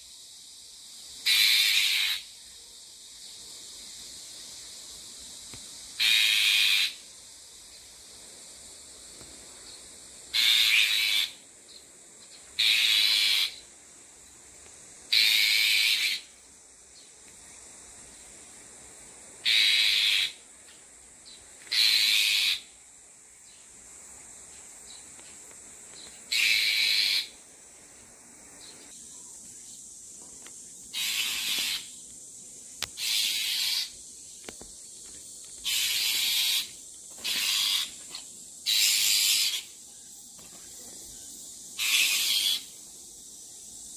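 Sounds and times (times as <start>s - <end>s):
shrike harsh rasping calls: 1.2s - 2.2s, 6.0s - 7.0s, 10.3s - 11.4s, 12.6s - 13.6s, 15.1s - 16.3s, 19.4s - 20.4s, 21.7s - 22.7s, 26.3s - 27.3s, 30.9s - 31.9s, 33.0s - 33.9s, 35.6s - 38.0s, 38.6s - 39.7s, 41.8s - 42.7s.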